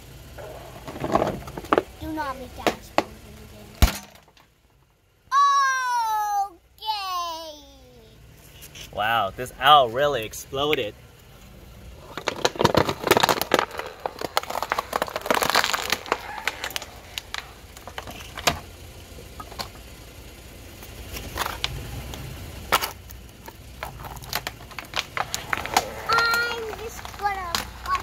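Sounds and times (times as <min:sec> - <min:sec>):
plastic crackling under car tyre: 0:00.3 - 0:03.4, 0:12.0 - 0:20.0, 0:20.6 - 0:28.0.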